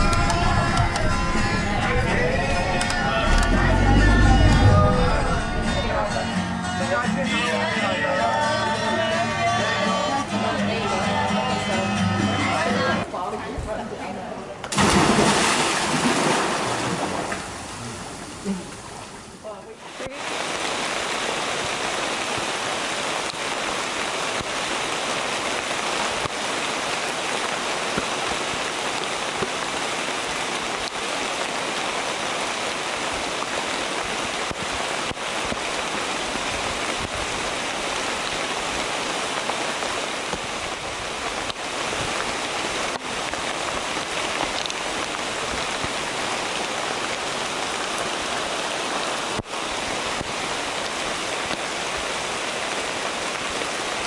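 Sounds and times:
rain falling on foliage: 0:00.0 - 0:06.3, 0:13.0 - 0:54.0.

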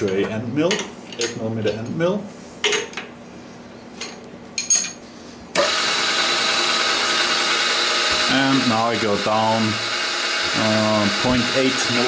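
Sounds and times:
milling machine spindle whine: 0:05.6 - 0:12.0.

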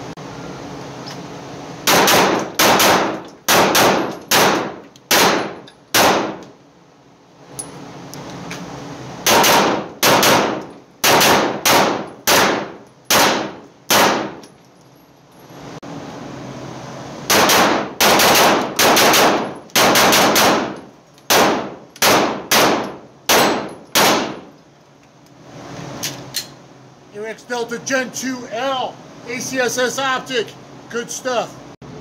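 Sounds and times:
pistol shots echoing: 0:01.9 - 0:06.4, 0:09.3 - 0:14.4, 0:17.3 - 0:24.4.

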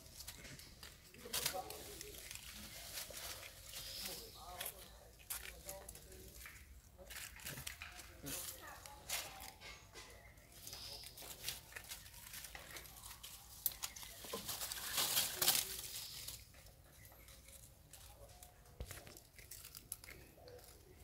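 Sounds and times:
rustling of dry leaves: 0:00.0 - 0:21.0.

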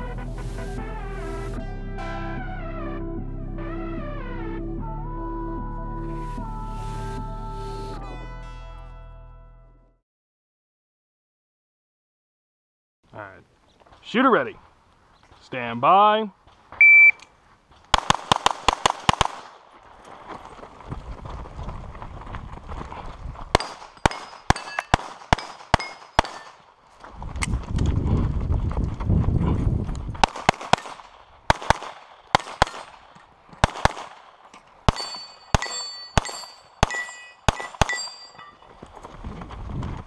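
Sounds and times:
pistol shots: 0:17.9 - 0:19.6, 0:23.6 - 0:26.6, 0:30.2 - 0:38.3
steel targets ringing: 0:23.6 - 0:26.6, 0:34.9 - 0:38.7.

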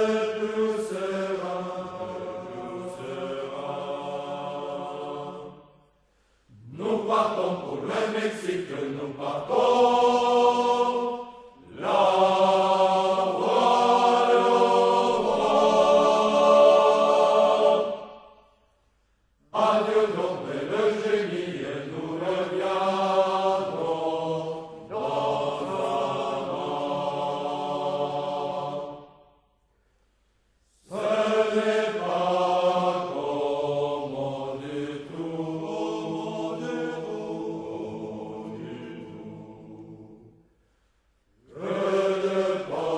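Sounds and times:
male choir singing: 0:00.0 - 0:05.8, 0:06.5 - 0:18.4, 0:19.5 - 0:29.2, 0:30.8 - 0:40.4, 0:41.4 - 0:42.9.

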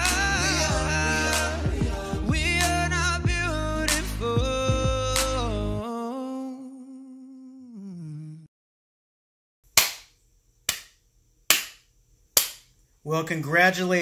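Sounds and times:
background music: 0:00.0 - 0:05.8.

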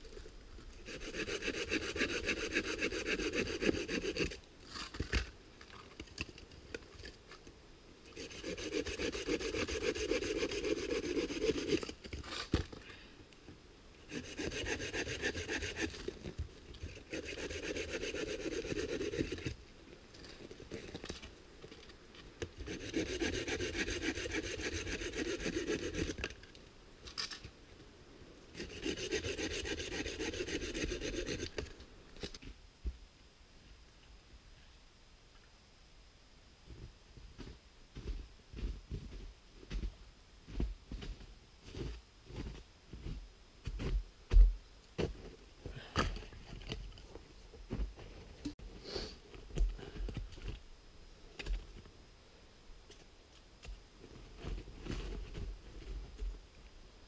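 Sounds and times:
hand saw cutting wood: 0:00.8 - 0:04.4, 0:08.2 - 0:11.9, 0:14.1 - 0:16.0, 0:16.9 - 0:19.6, 0:22.6 - 0:26.3, 0:28.6 - 0:31.6.

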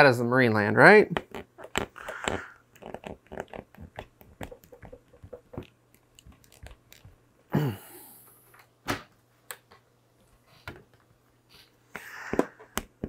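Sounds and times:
plastic tubing clicks and knocks: 0:01.1 - 0:07.2.

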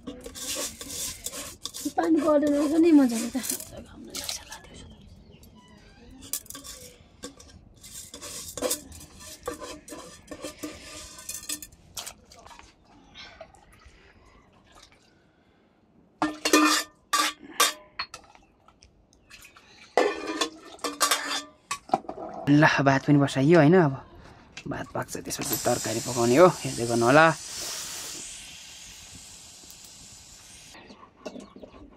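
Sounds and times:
metal pots clattering and scraping: 0:00.0 - 0:04.8, 0:06.2 - 0:12.8, 0:16.2 - 0:18.4, 0:19.4 - 0:22.9, 0:30.7 - 0:31.9.

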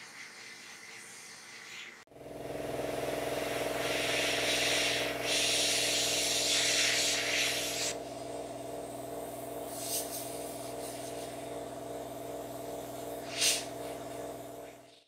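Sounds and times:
airbrush hissing: 0:00.0 - 0:02.1, 0:03.3 - 0:15.0
compressor motor humming: 0:02.1 - 0:15.0.

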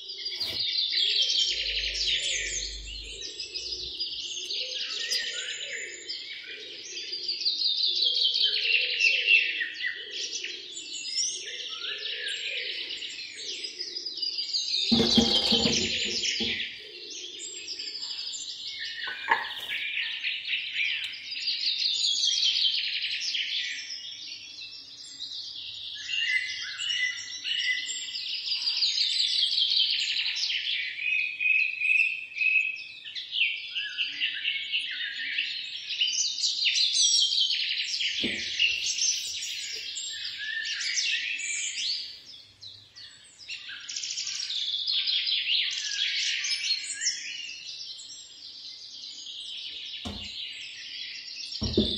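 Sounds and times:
small birds chirping: 0:00.0 - 0:51.9
soft knock: 0:15.0 - 0:16.7, 0:38.2 - 0:38.6, 0:50.1 - 0:50.4, 0:51.6 - 0:51.9.

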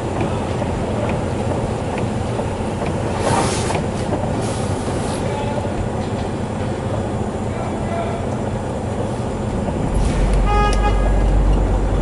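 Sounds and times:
diesel engine idling: 0:00.0 - 0:12.0
air hissing bursts: 0:03.1 - 0:05.3.

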